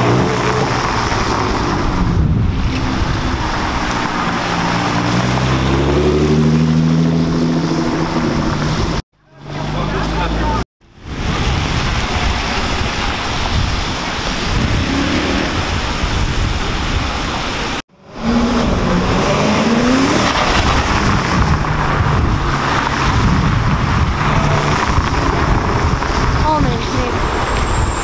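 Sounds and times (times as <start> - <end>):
car engines passing: 0.0 - 28.0
tyres hissing on wet road: 9.5 - 28.0
rising engine note: 24.0 - 26.5.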